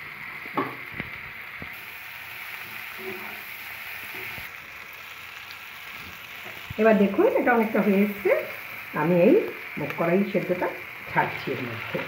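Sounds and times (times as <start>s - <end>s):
food frying in oil: 0.0s - 12.0s.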